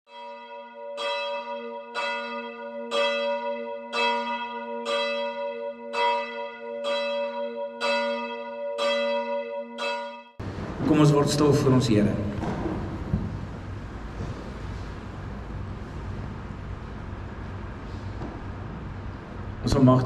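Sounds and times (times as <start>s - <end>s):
church bell tolling: 0.1s - 12.4s
steady low hum: 10.4s - 20.0s.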